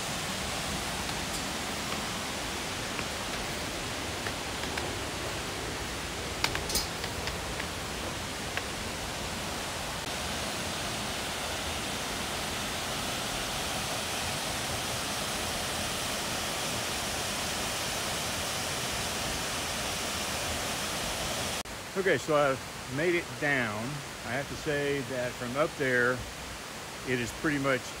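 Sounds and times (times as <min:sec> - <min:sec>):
waterfall rushing: 0:00.0 - 0:28.0
footsteps on metal grated steps: 0:00.4 - 0:05.5, 0:06.3 - 0:08.7.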